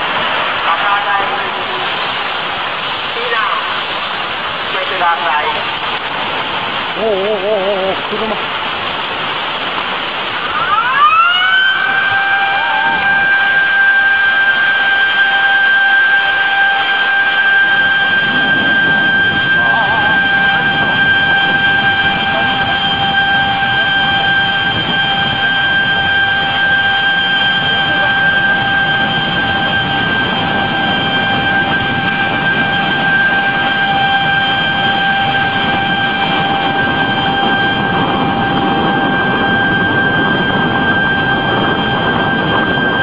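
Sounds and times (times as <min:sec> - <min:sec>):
floodwater rushing: 0:00.0 - 0:43.0
steady high-pitched tone: 0:10.1 - 0:43.0.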